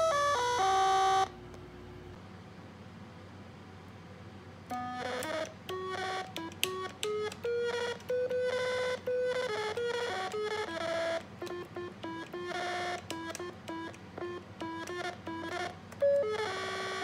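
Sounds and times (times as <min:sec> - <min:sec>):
electronic beeping notes: 0:04.7 - 0:17.0.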